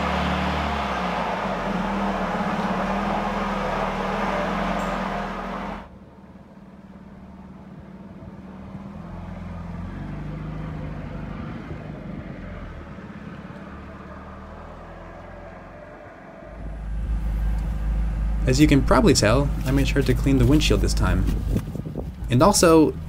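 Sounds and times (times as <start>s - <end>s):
car driving past: 0.0s - 5.9s, 7.4s - 23.0s
car engine running: 0.0s - 8.6s, 15.7s - 23.0s.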